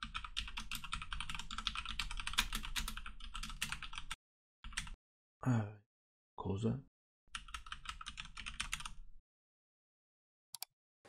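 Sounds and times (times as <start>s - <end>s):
fast typing on a keyboard: 0.0s - 5.0s, 7.4s - 9.0s.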